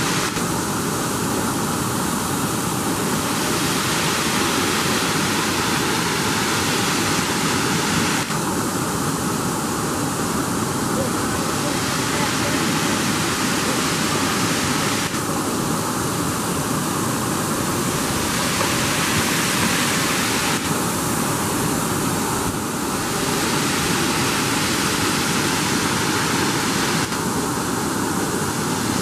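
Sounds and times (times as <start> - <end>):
waterfall rushing onto rock: 0.0 - 29.0.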